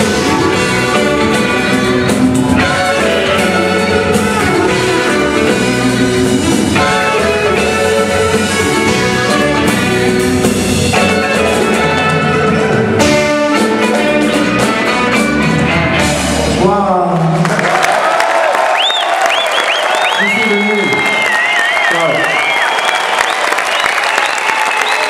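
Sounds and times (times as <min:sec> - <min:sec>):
electric guitar: 0:00.0 - 0:17.4
bass: 0:00.0 - 0:18.0
drums: 0:00.0 - 0:25.0.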